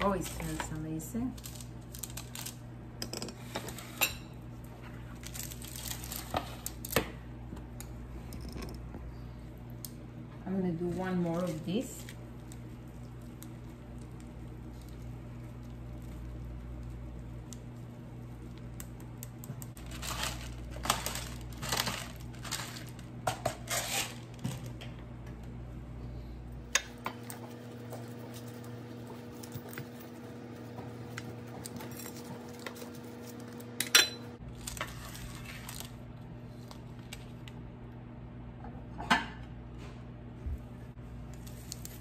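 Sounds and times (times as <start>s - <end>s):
metal utensils scraping baking sheet: 20.0s - 24.4s.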